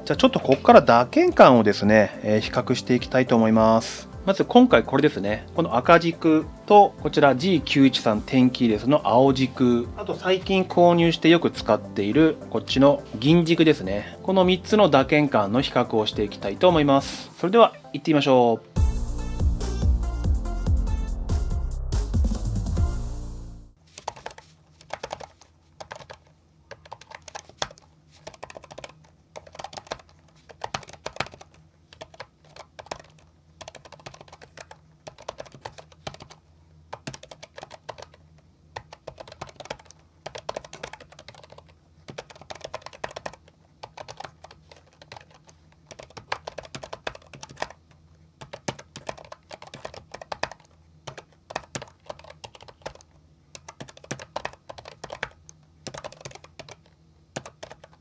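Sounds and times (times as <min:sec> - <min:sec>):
mechanical keyboard typing: 0:24.0 - 0:58.0.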